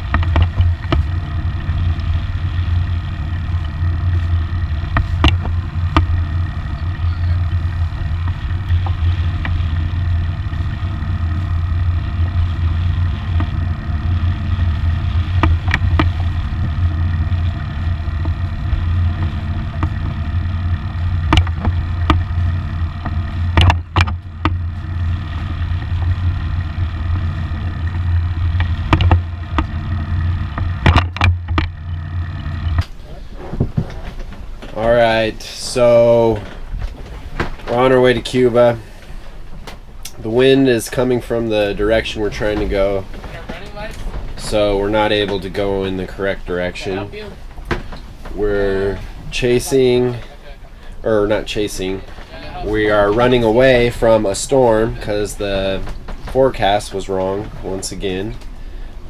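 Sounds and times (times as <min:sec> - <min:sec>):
boat engine low drone: 0:00.0 - 0:59.0
sharp knocks: 0:23.0 - 0:24.6.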